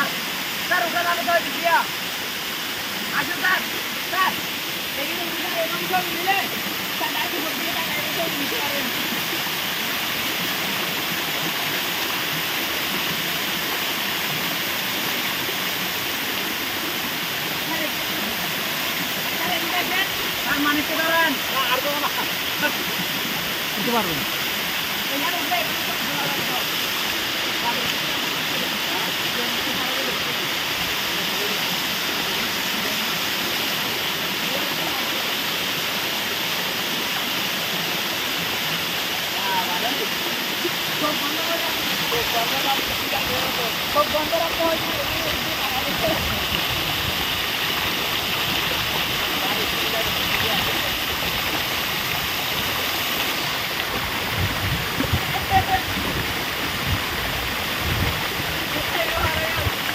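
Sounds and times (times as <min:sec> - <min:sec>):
waterfall rushing: 0:00.0 - 0:59.9.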